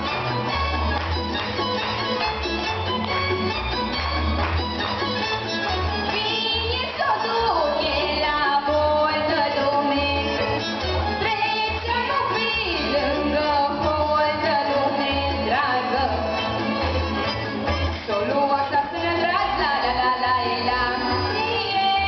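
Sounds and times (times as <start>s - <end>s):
amplified instrumental accompaniment: 0.0s - 22.0s
woman singing into microphone: 6.1s - 10.5s, 11.1s - 16.4s, 18.0s - 22.0s.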